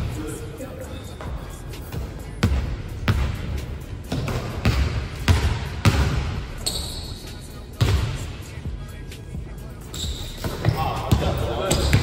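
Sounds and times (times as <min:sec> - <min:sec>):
basketball bouncing on wooden floor: 0:04.1 - 0:06.2.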